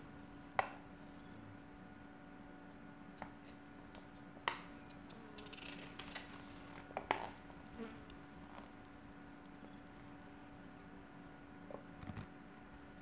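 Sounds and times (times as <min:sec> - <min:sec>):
faint steady hum: 0:00.0 - 0:13.0
paper crackling: 0:05.4 - 0:06.9.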